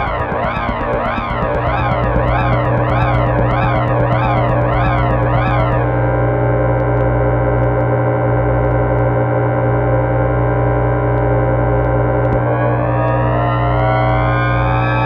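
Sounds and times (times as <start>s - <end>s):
warbling electronic tone: 0.0s - 9.6s
dense droning synth chord: 0.0s - 15.0s.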